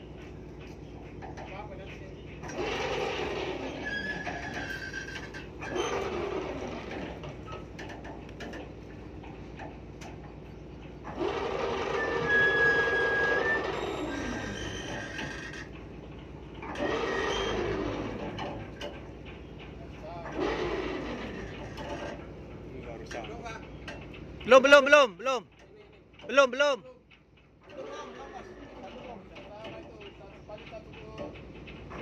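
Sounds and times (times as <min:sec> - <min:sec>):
winch motor running: 0:00.0 - 0:32.0.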